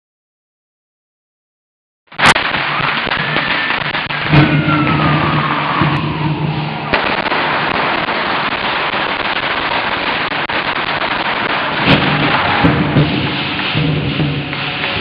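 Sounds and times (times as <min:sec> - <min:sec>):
firecrackers crackling: 0:02.1 - 0:15.0
low din: 0:04.2 - 0:07.0.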